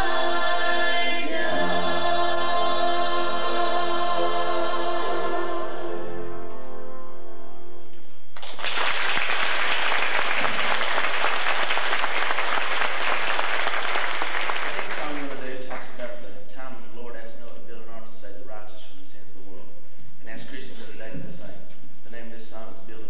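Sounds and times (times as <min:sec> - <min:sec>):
choir holding a sustained chord: 0:00.0 - 0:07.8
audience applause: 0:08.4 - 0:15.4.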